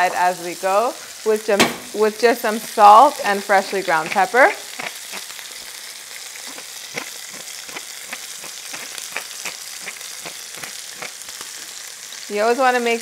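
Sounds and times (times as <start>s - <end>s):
chicken sizzling in a skillet: 0.0s - 13.0s
oil crackling pops: 3.6s - 11.8s.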